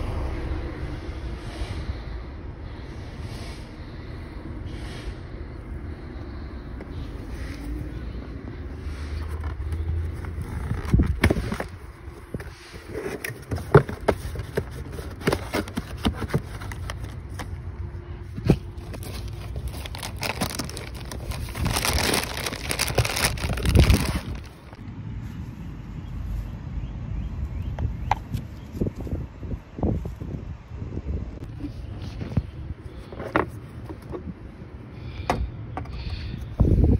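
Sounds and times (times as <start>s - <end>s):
plastic bag crinkling: 18.8s - 24.8s.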